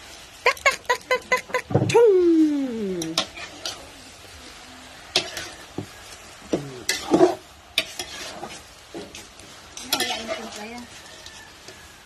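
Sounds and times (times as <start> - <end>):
shrimp sizzling in butter: 0.0 - 12.0
metal spatula scraping wok: 2.9 - 12.0.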